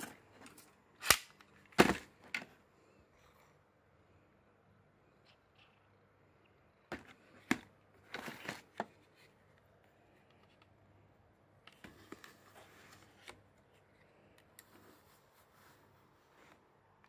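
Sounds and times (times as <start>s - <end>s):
rustling plastic clatter: 6.9s - 9.2s.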